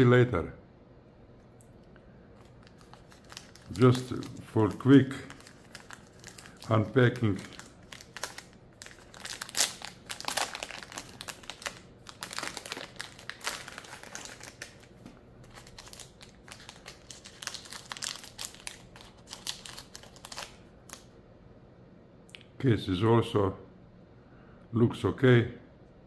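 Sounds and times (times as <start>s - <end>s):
plastic packaging crinkling: 2.3s - 21.1s.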